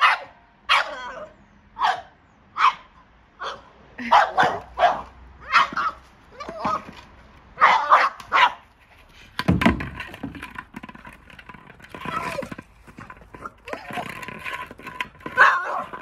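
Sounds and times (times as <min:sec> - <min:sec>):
dog barking and yipping: 0:00.0 - 0:06.9, 0:07.6 - 0:08.6, 0:15.2 - 0:16.0
scuffling and knocking: 0:05.6 - 0:07.4, 0:08.7 - 0:16.0
thump: 0:09.4 - 0:10.4.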